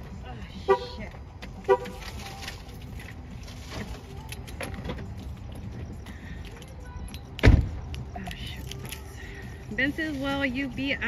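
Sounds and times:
car door shutting: 7.4 - 7.8.

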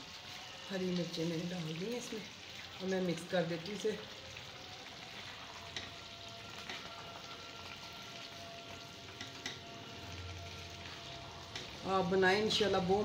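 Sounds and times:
daal sizzling in pot: 0.0 - 13.0.

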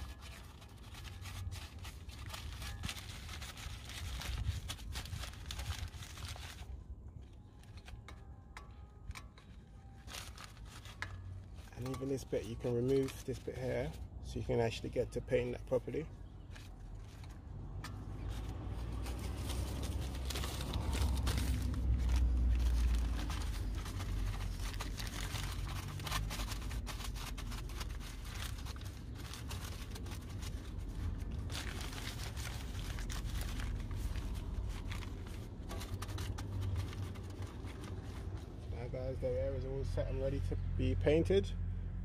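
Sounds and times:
paper crinkling and rustling: 0.0 - 38.9
steady low rumble: 16.0 - 39.9.

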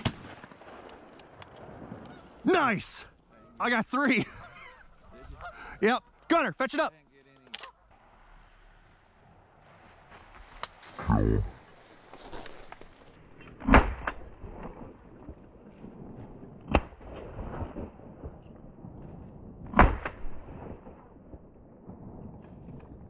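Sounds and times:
shotgun shots: 0.0 - 1.0, 19.7 - 20.9.

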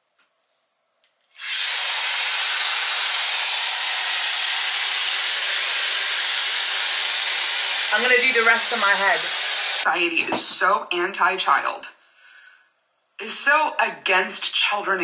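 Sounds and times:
hair styler blowing air: 1.4 - 9.9.

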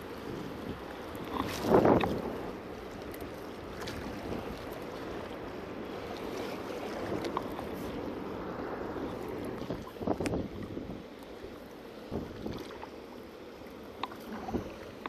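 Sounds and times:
wind buffeting microphone: 0.0 - 2.6, 5.8 - 11.2, 12.0 - 12.7
water washing against rocks: 1.2 - 2.4.

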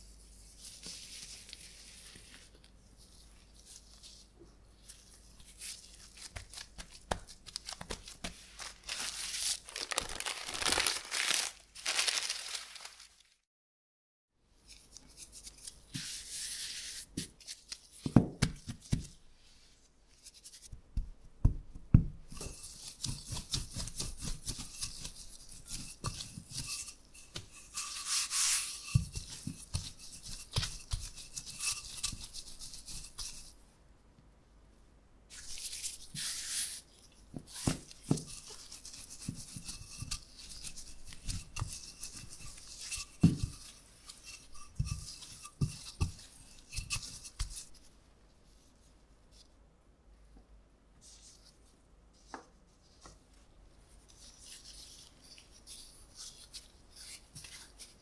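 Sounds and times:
flour sprinkling onto a counter: 6.2 - 13.4
rolling pin rolling dough: 20.7 - 33.6, 35.5 - 47.9.

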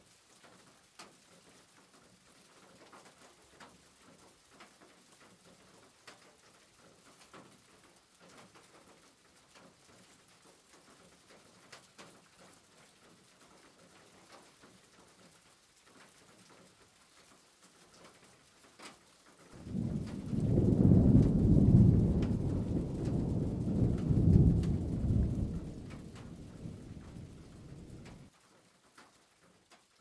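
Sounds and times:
loud low rumbling noise: 19.6 - 28.2.

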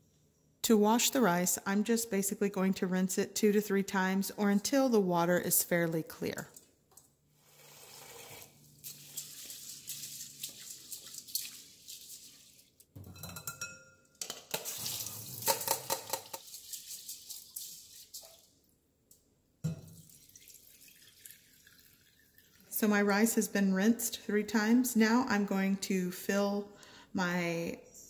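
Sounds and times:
water poured through strainer: 7.4 - 12.8, 14.5 - 18.5, 19.9 - 22.7
tap water running: 7.4 - 12.9, 14.5 - 18.6, 19.7 - 22.8
water swishing and splashing: 7.5 - 12.8, 14.7 - 18.6.

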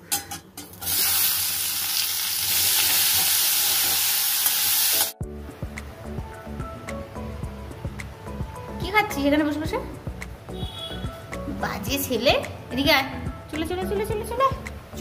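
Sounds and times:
vegetables sizzling in hot oil: 0.7 - 5.2
background music: 4.7 - 15.0.

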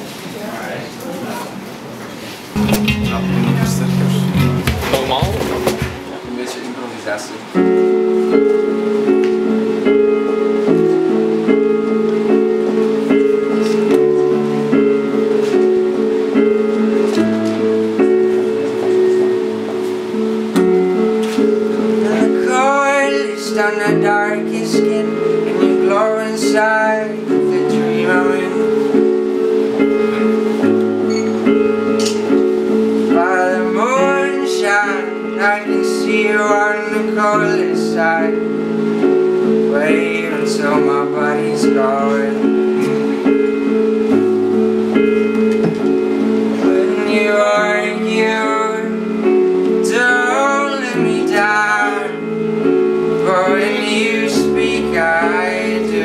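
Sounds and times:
acoustic guitar: 2.3 - 6.5, 7.5 - 56.0
electric keyboard chords: 2.5 - 56.0
man singing: 21.9 - 28.8, 33.1 - 38.5, 39.7 - 42.5, 46.6 - 49.0, 49.8 - 52.3, 53.2 - 56.0.

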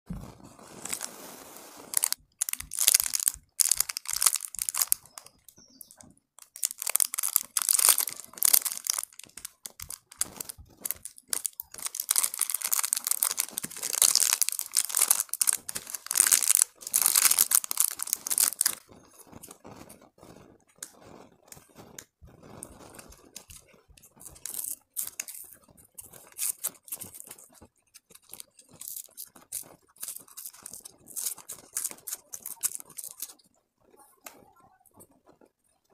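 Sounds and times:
plastic wrappers crinkling: 0.8 - 1.1, 1.8 - 18.9, 23.0 - 33.4.

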